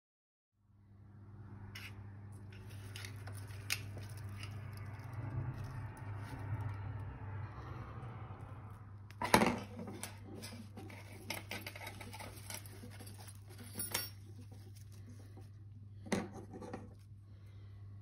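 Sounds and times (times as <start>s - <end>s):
steady low hum: 0.7s - 18.0s
small clicks and rustles: 2.4s - 7.1s, 9.1s - 15.8s.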